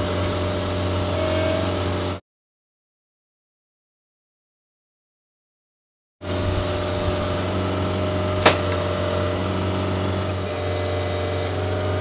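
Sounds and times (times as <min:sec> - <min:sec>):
drill rig engine running: 0:00.0 - 0:02.2, 0:06.2 - 0:12.0
sharp knock: 0:08.4 - 0:08.8.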